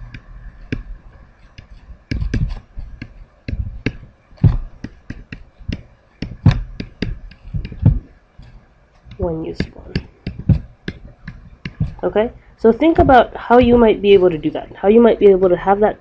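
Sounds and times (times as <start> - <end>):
stylus tapping on tablet screen: 0.0 - 12.1, 12.8 - 14.2.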